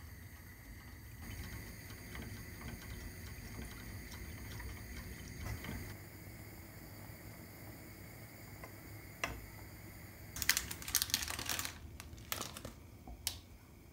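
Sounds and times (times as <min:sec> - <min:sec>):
whisk ticking against a pot: 0:00.0 - 0:05.9.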